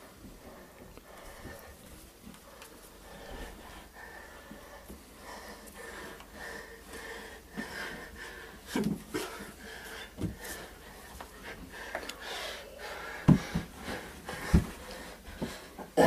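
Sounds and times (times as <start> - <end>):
heavy breathing and panting: 0.0 - 16.0
bodies thumping on floor: 13.2 - 15.6.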